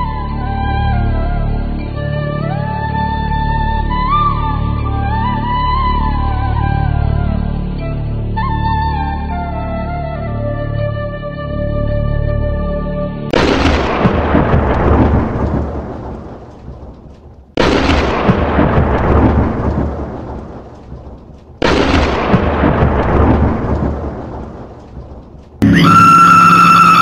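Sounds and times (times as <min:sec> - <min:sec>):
thunderclaps rumbling: 0:13.3 - 0:27.0.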